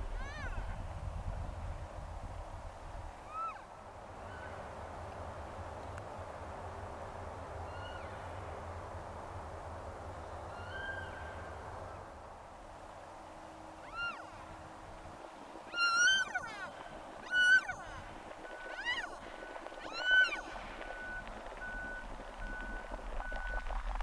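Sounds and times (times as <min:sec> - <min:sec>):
elk mewing calls: 0:15.7 - 0:22.8.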